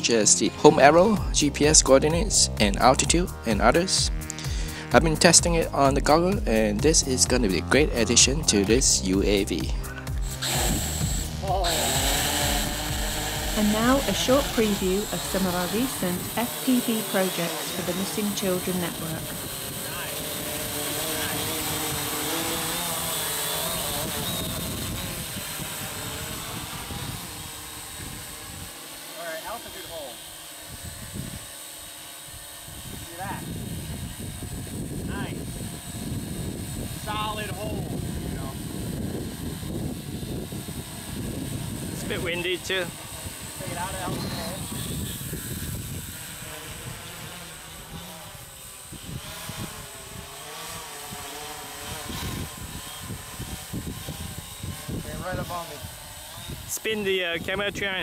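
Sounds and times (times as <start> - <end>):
drone propellers whirring: 0.0 - 58.0
wind rumble on microphone: 17.8 - 28.8, 30.6 - 58.0.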